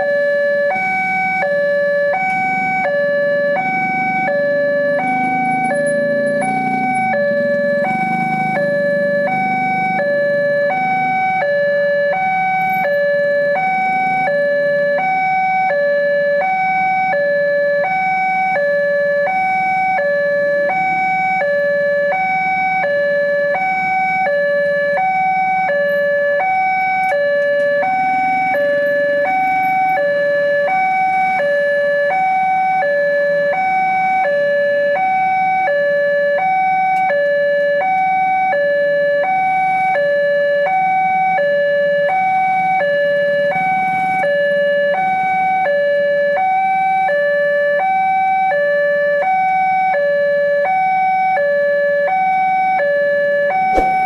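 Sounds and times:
two-note level crossing alarm: 0.0s - 48.5s, 49.2s - 54.0s.

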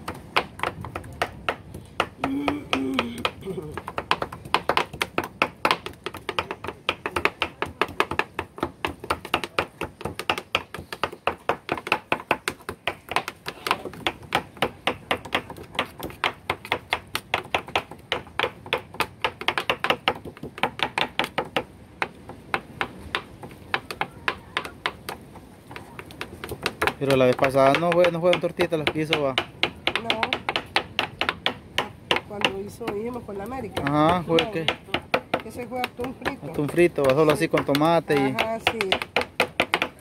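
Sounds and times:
knives chopping on cutting boards: 26.0s - 32.6s, 33.7s - 40.0s.

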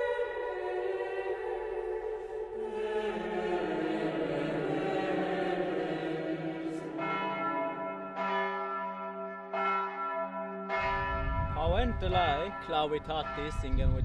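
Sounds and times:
bell tolling: 7.0s - 14.0s.

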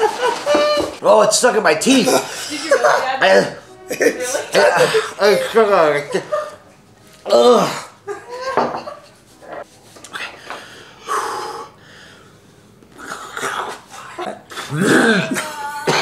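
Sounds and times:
man gagging and coughing: 2.0s - 6.3s, 13.6s - 16.0s
man groaning: 7.2s - 8.0s, 13.0s - 16.0s
man wheezing breaths: 10.1s - 15.4s.

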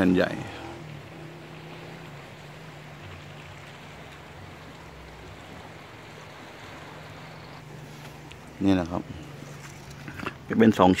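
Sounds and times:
sea wash: 0.0s - 11.0s.

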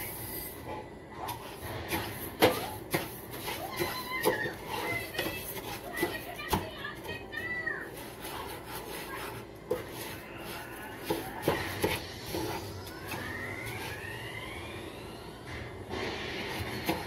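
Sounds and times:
spatula scraping rice in a pan: 0.0s - 7.2s, 7.8s - 14.0s.

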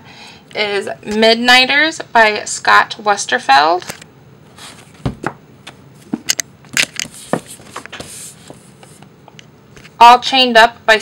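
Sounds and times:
rustle of book covers: 4.5s - 5.1s, 6.7s - 9.0s
books knocking when set down: 4.9s - 5.4s, 6.1s - 8.6s.

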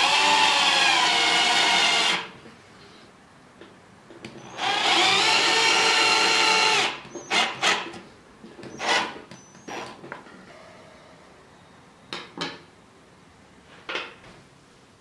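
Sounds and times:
cordless drill driving screw: 4.4s - 7.9s.

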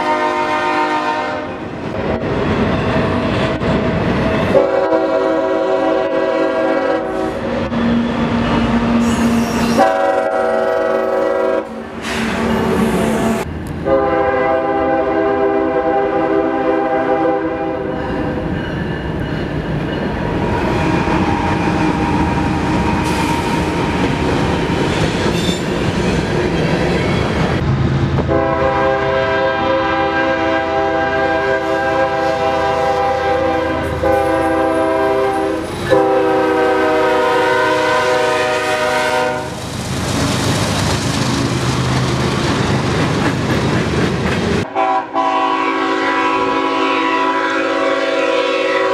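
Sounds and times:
locomotive air horn blasts: 0.0s - 1.6s, 4.5s - 7.8s, 8.8s - 17.9s, 28.2s - 39.6s, 44.6s - 48.9s
freight train rumbling and clattering: 0.0s - 45.5s.

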